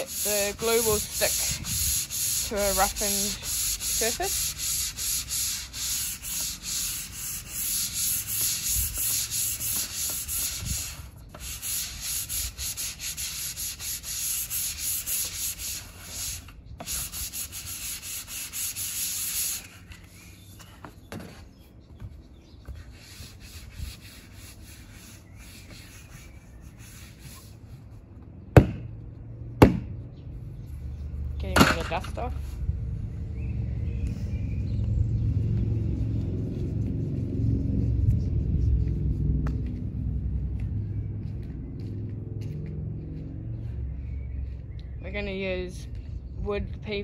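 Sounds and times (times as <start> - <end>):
sandpaper rubbing on wood: 0.0 - 20.2, 22.6 - 27.7.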